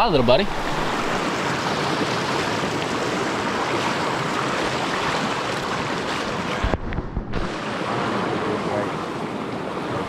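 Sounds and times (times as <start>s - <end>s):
water rushing over rocks: 0.0s - 10.0s.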